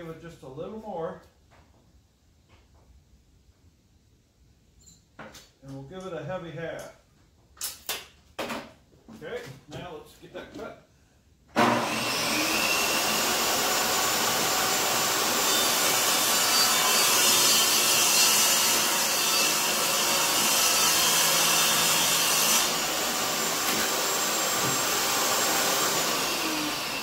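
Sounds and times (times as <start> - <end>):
saw blade cutting vinyl plank: 11.6 - 27.0
table saw motor running: 11.6 - 27.0.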